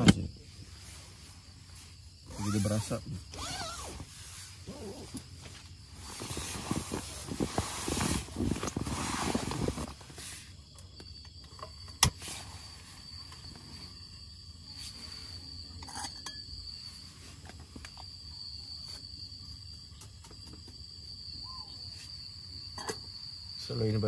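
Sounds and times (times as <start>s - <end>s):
crickets chirring: 0.0s - 24.0s.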